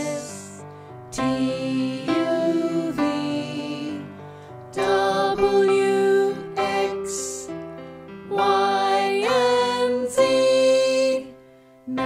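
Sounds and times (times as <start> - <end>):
children's song music: 0.0 - 12.0.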